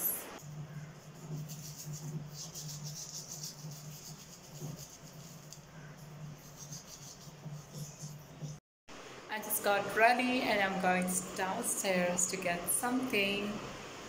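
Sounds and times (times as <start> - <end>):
toothbrush scrubbing teeth: 0.4 - 8.6.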